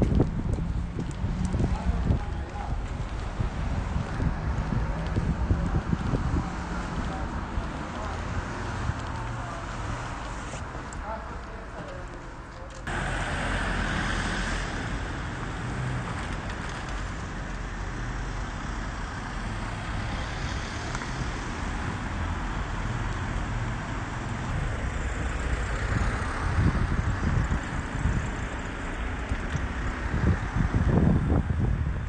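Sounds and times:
cars driving past: 0:00.1 - 0:32.0.

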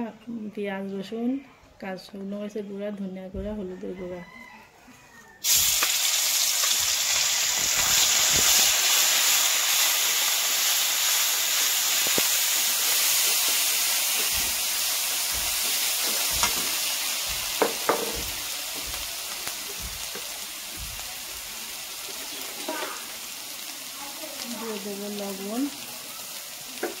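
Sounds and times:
spices sizzling in hot oil: 0:05.4 - 0:27.0
metal spatula scraping pan: 0:12.8 - 0:20.5.

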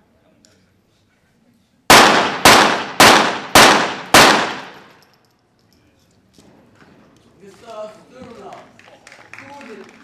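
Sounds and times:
pistol shots: 0:01.9 - 0:05.0.

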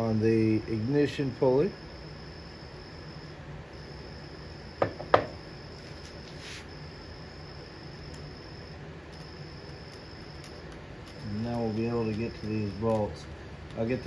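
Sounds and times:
low steady hum: 0:00.0 - 0:14.0
sharp knocks: 0:04.8 - 0:05.4.

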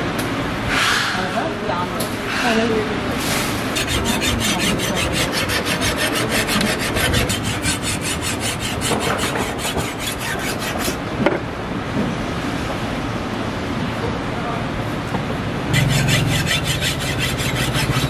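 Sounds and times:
knife rasping against a file: 0:03.6 - 0:11.0, 0:15.8 - 0:18.0.

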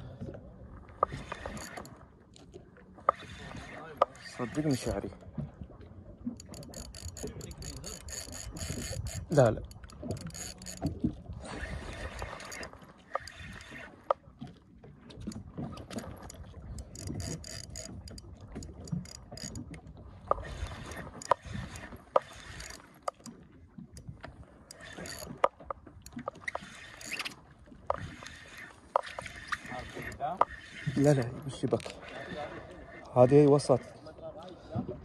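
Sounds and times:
sharp reel clicks: 0:01.0 - 0:01.9, 0:06.4 - 0:10.9, 0:16.8 - 0:19.6, 0:20.3 - 0:23.3, 0:24.7 - 0:31.2
fishing reel gears cranking: 0:01.1 - 0:02.0, 0:04.2 - 0:05.0, 0:06.4 - 0:13.9, 0:15.2 - 0:19.7, 0:20.3 - 0:23.4, 0:24.7 - 0:25.5, 0:26.1 - 0:32.0.

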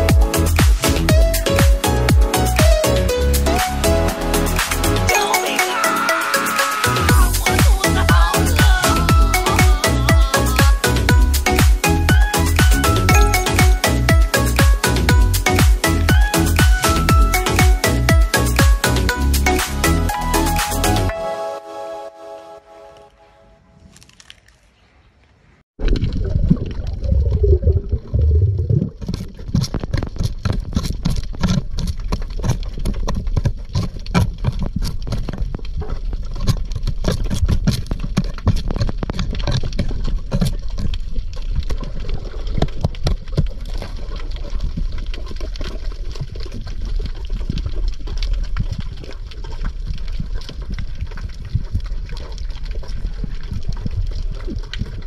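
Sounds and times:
dense crackle of small clicks: 0:25.8 - 0:55.0
low rumble of moving water: 0:25.8 - 0:55.0.

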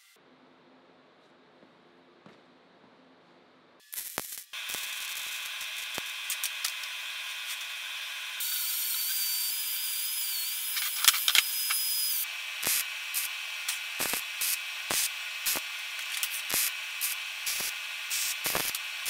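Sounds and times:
tack weld bursts: 0:03.8 - 0:07.8, 0:10.7 - 0:18.9
welding crackling hiss: 0:03.8 - 0:19.0
angle grinder whining: 0:04.6 - 0:19.0.

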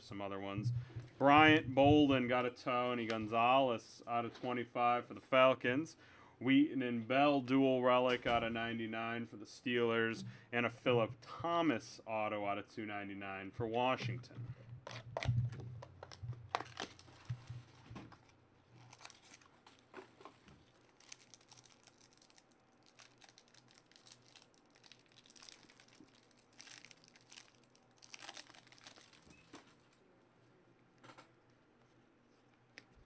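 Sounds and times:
handling of cards: 0:14.3 - 0:30.0
wrapper crinkling and tearing: 0:14.8 - 0:30.0.

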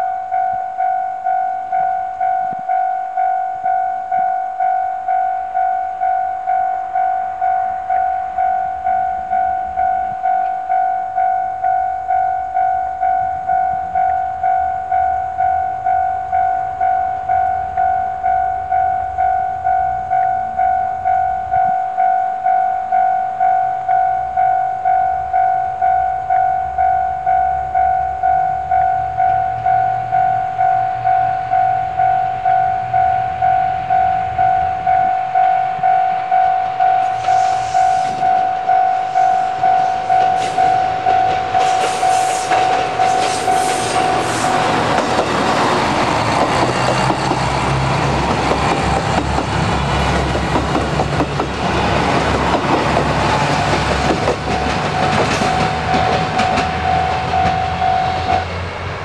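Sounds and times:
level crossing bell ringing: 0:00.0 - 0:45.0, 0:54.4 - 0:58.4
diesel train rumbling: 0:00.0 - 0:59.0
train wheel clicks: 0:36.9 - 0:58.5.

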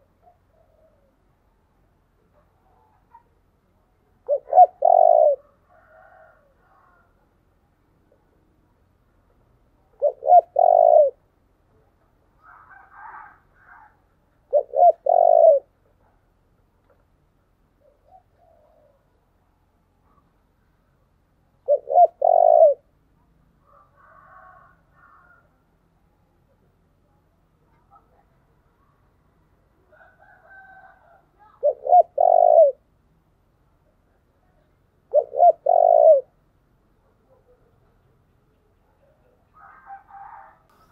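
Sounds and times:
dove cooing: 0:00.0 - 0:01.2, 0:04.1 - 0:07.2, 0:09.8 - 0:11.3, 0:12.4 - 0:15.8, 0:17.8 - 0:19.3, 0:21.6 - 0:22.9, 0:29.9 - 0:32.9, 0:34.5 - 0:36.4.

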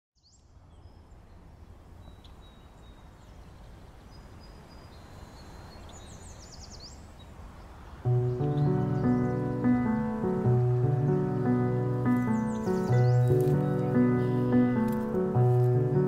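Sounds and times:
music with sustained chords: 0:08.0 - 0:16.0.

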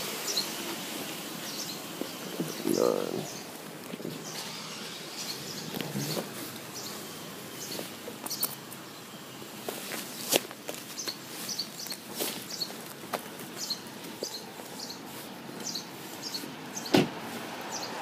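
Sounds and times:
small birds chirping: 0:00.2 - 0:00.5, 0:01.4 - 0:17.0.

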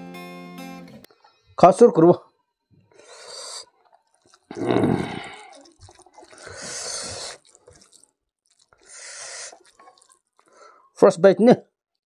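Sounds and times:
hand squishing wet food: 0:03.0 - 0:10.9.

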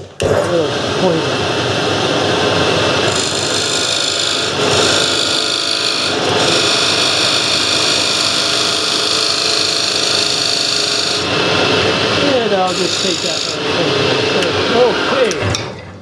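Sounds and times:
lathe running: 0:00.5 - 0:15.4
chisel scraping spinning wood: 0:03.0 - 0:15.3.

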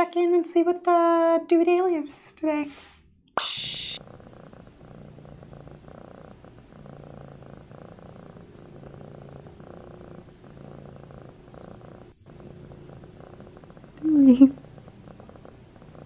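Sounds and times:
cat purring: 0:03.7 - 0:16.0.

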